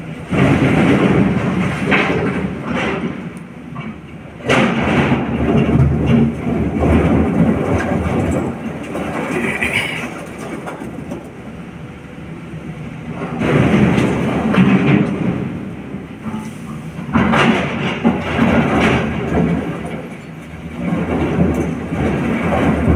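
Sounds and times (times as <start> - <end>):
diesel engine running: 6.3 - 17.4.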